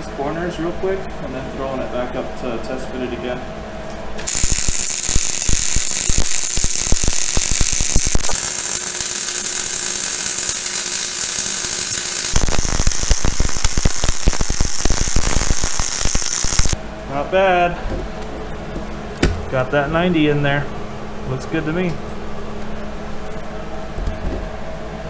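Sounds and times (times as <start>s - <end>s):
welding arc crackling: 4.2s - 16.8s
welder hiss: 4.3s - 16.8s.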